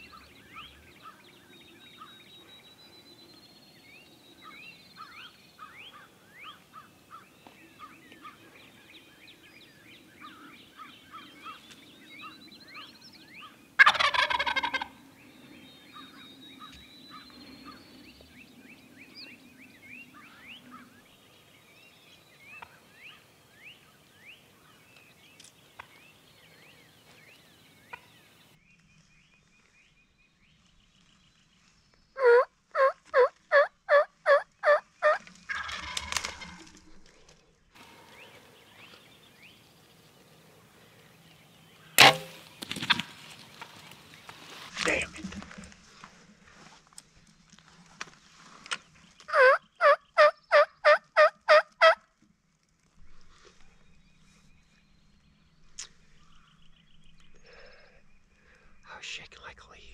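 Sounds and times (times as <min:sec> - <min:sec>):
turkey yelps: 0:13.8 - 0:14.9, 0:32.2 - 0:36.4, 0:49.3 - 0:52.0
turkey gobbling: 0:13.8 - 0:15.0, 0:32.2 - 0:36.5, 0:49.3 - 0:52.0.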